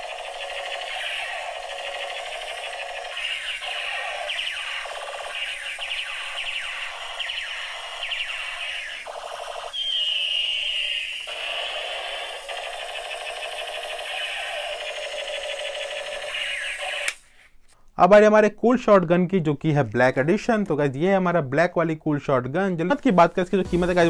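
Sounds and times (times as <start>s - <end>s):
electronic falling whine: 0.0s - 17.1s
toy gun laser zaps: 0.0s - 17.2s.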